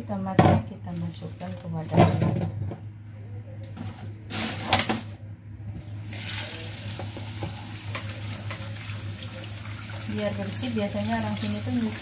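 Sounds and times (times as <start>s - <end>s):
low steady hum: 0.0s - 12.0s
tap water running into bowl: 6.1s - 12.0s.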